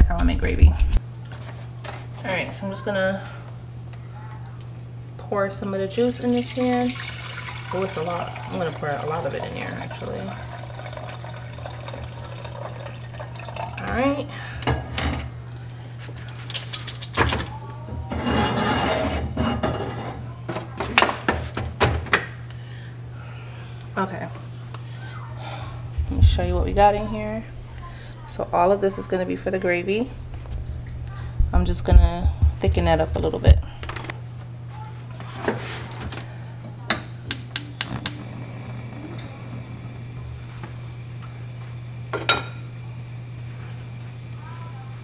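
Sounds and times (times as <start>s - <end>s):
liquid pouring into metal pot: 6.3s - 14.0s
gas burner igniter clicking: 37.3s - 39.3s.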